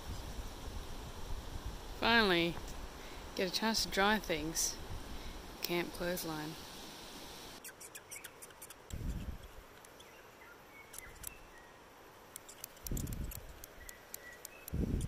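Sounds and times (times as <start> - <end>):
bird chirping squeakily: 7.6 - 8.8.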